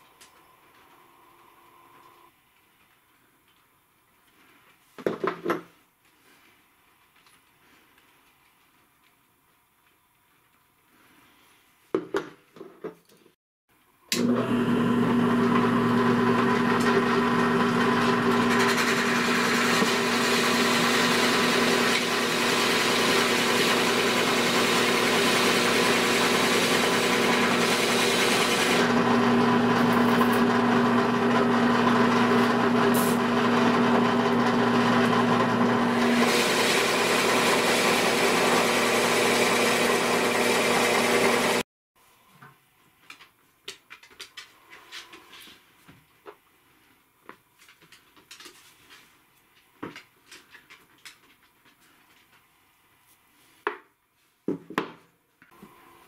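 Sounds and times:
drill press boring wood: 14.1 - 41.6.

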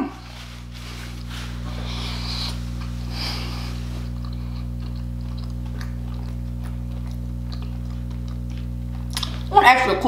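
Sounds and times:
steady low hum: 0.0 - 10.0
person chewing food: 0.2 - 9.5
sniffs through the nose: 0.5 - 4.7.

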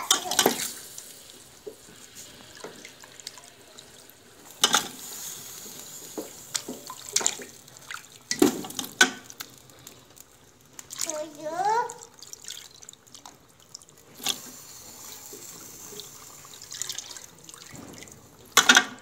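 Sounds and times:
wet squelches: 6.5 - 11.2, 11.9 - 15.0, 16.1 - 18.2.

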